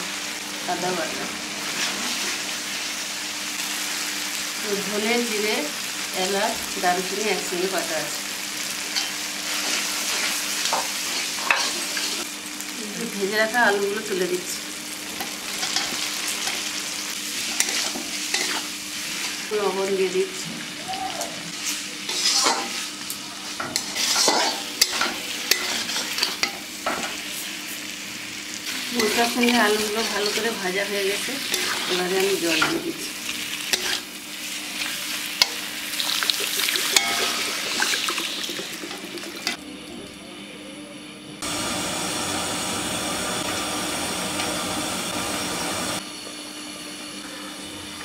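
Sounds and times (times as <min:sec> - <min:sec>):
potatoes sizzling in oil: 0:00.0 - 0:39.6
spatula scraping pan: 0:17.4 - 0:19.4, 0:21.6 - 0:22.9, 0:23.5 - 0:27.1, 0:31.4 - 0:32.9, 0:33.6 - 0:34.1
pot simmering: 0:36.0 - 0:39.6.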